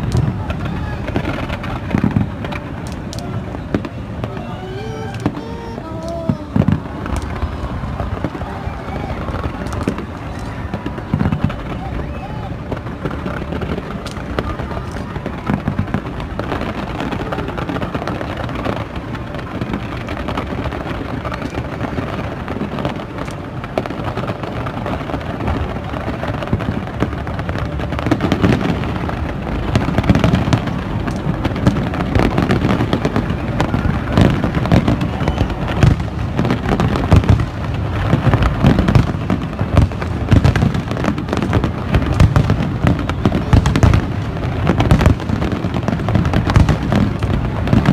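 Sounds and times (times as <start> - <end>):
fireworks bursting and crackling: 0.0 - 47.9.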